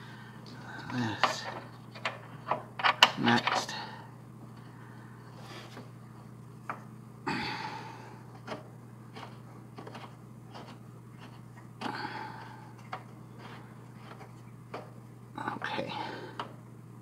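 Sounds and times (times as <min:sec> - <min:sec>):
steady low hum: 0:00.0 - 0:17.0
metal parts clicking and tapping: 0:01.2 - 0:03.7
breathy sounds of effort: 0:07.2 - 0:08.4, 0:11.8 - 0:14.2, 0:15.4 - 0:16.6.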